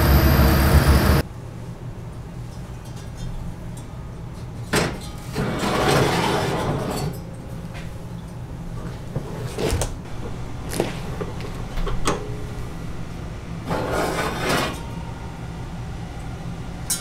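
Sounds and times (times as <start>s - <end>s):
low hum: 0.0s - 1.2s
oven rack clinking and scraping: 4.6s - 7.3s, 13.7s - 15.0s.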